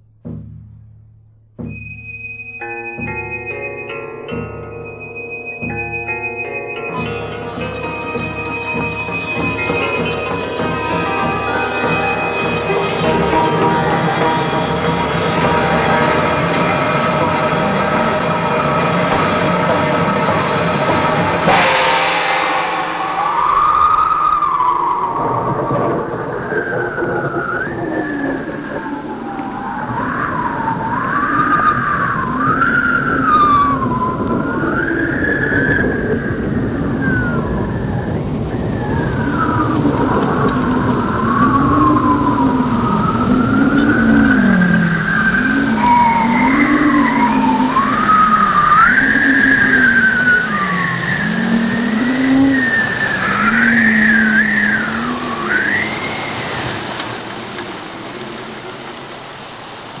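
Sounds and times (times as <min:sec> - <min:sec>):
slow sliding tones: 0:00.0 - 1:00.0.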